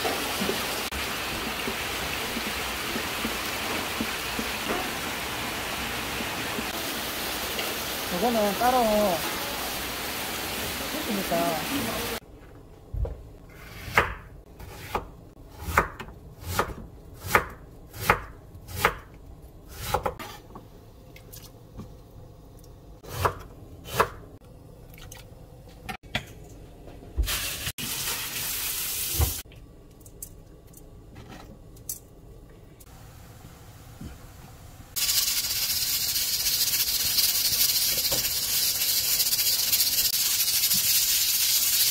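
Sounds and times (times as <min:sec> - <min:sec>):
knife chopping on wooden board: 0:13.7 - 0:19.1.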